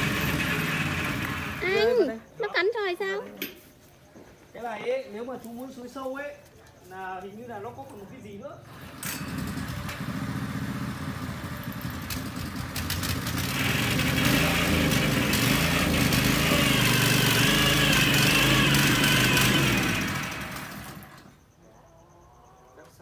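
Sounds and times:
tiller engine running: 0.0 - 2.2, 8.6 - 21.4.

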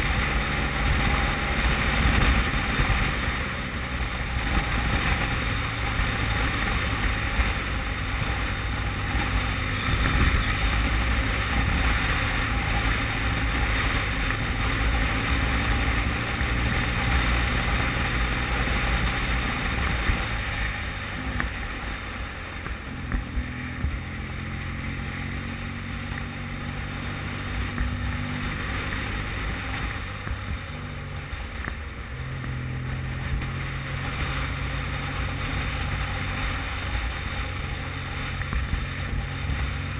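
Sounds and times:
wind noise on microphone: 0.0 - 21.3
motorcycle engine running: 0.0 - 39.9.

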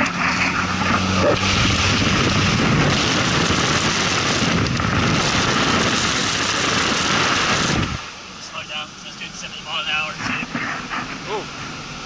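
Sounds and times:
diesel engine at full throttle: 0.0 - 12.0
wind buffeting microphone: 0.7 - 8.1.

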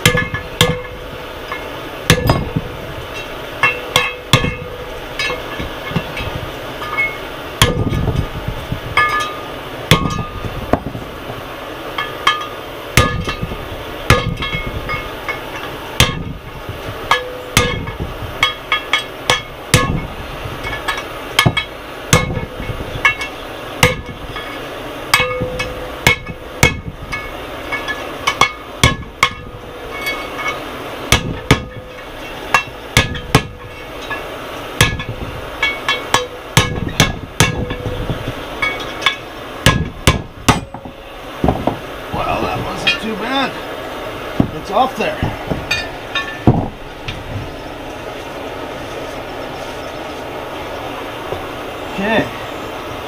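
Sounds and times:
hammer striking steel punch: 0.0 - 2.6, 3.6 - 6.2, 6.8 - 8.1, 9.0 - 10.9, 12.0 - 13.5, 14.1 - 15.0, 16.0 - 16.4, 17.1 - 20.1, 20.7 - 24.5, 25.1 - 34.2, 34.8 - 37.9, 38.6 - 41.8.

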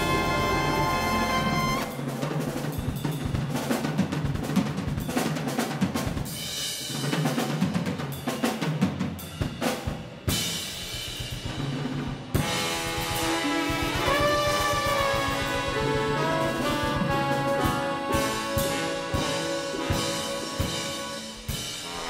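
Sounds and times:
big band ensemble chords: 0.0 - 4.2, 9.2 - 22.0
drum kit playing busily: 0.0 - 22.0.

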